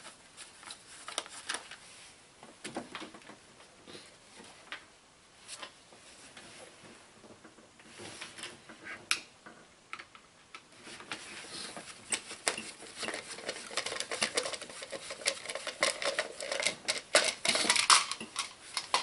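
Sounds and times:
small clicks taps and scrapes: 11.8s - 19.0s.

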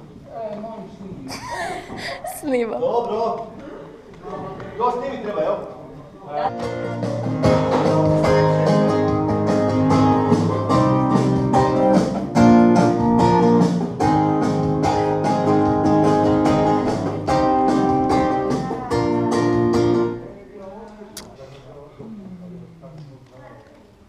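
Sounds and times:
guitar chords strummed: 6.4s - 20.2s.

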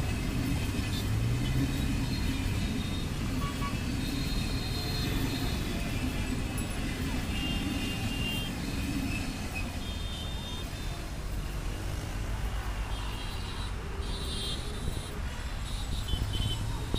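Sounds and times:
train wheels rumbling on rails: 0.0s - 12.7s.

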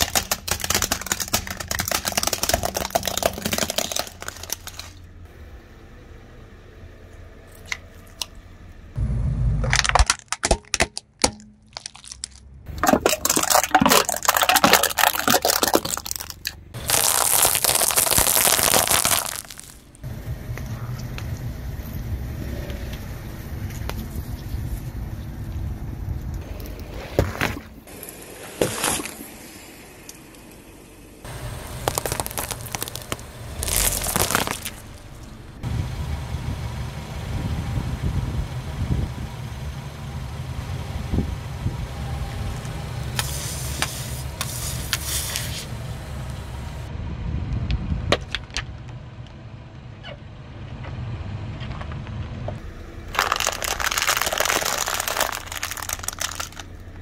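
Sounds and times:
tyre crushing brittle objects: 0.0s - 5.0s, 9.7s - 20.0s, 31.6s - 34.9s, 53.1s - 56.8s
car engine running: 19.4s - 26.9s, 29.3s - 57.0s.

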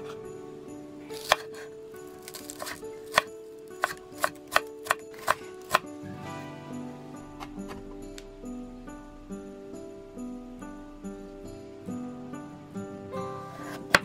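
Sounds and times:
knife chopping on cutting board: 1.2s - 1.7s, 2.3s - 5.9s, 13.6s - 14.0s.

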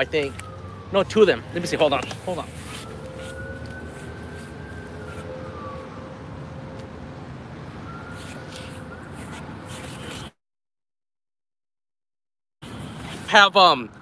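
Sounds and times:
siren wailing: 0.0s - 10.2s
city traffic rumble: 0.0s - 10.4s, 12.6s - 14.0s.

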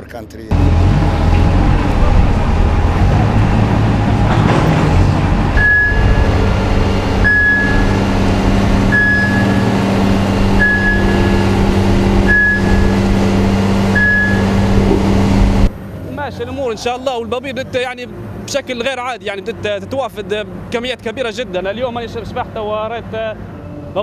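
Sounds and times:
crane engine running: 0.5s - 16.2s
short high warning beeps: 5.6s - 6.4s, 7.2s - 8.2s, 8.9s - 14.7s.

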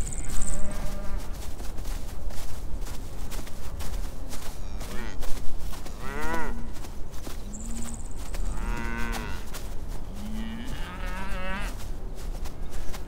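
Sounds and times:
cattle mooing: 8.5s - 9.4s.

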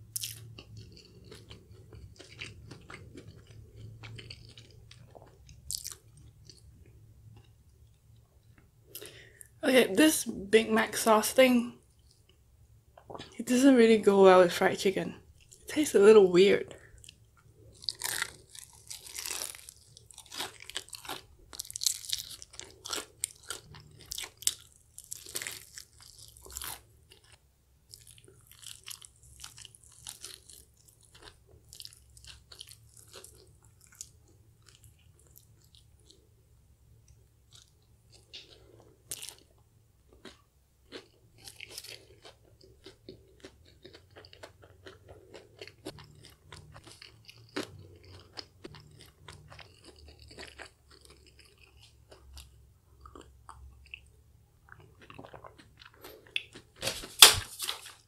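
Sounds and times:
soft chewing: 0.0s - 9.6s, 11.8s - 13.4s, 15.2s - 15.7s, 16.6s - 56.9s
crunchy bites of fried chicken: 17.0s - 36.2s.

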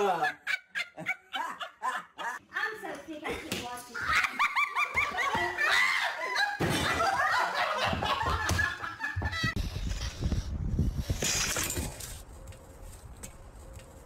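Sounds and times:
person laughing hard: 0.0s - 2.4s.

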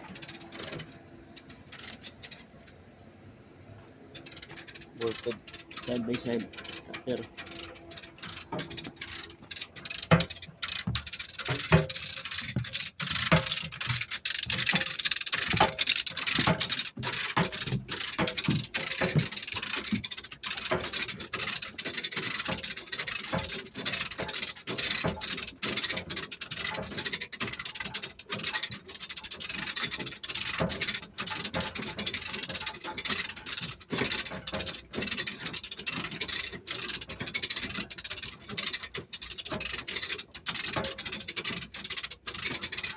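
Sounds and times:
ratchet clicking: 0.2s - 2.4s, 4.2s - 42.9s
chain rattle: 4.2s - 42.9s.

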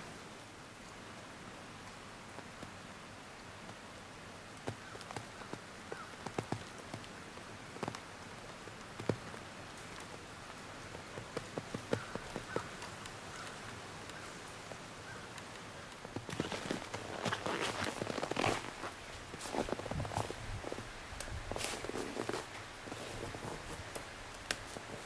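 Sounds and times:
steady hiss: 0.0s - 25.0s
twigs snapping underfoot: 15.9s - 25.0s
footsteps crunching through snow: 16.1s - 25.0s.

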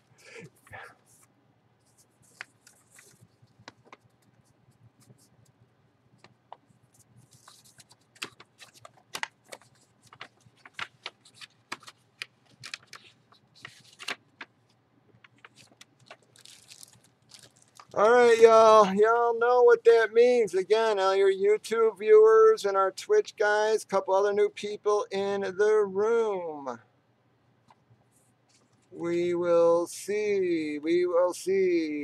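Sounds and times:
plastic wrapping crinkling: 0.5s - 5.2s, 6.6s - 18.1s
paper envelope rustling: 0.5s - 5.3s, 6.2s - 18.1s.

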